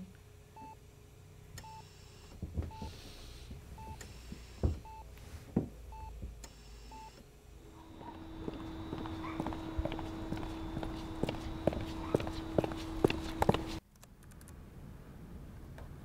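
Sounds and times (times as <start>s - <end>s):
heart monitor beeping: 2.7s - 2.9s, 3.8s - 5.1s, 7.8s - 13.8s.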